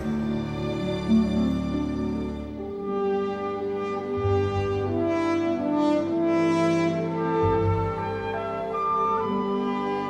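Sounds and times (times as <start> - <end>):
slow horn-like notes: 2.6 - 10.0.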